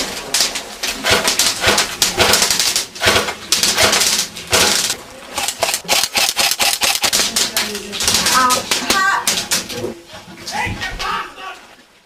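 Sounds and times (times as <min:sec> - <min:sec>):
airsoft guns firing: 0:01.0 - 0:08.3.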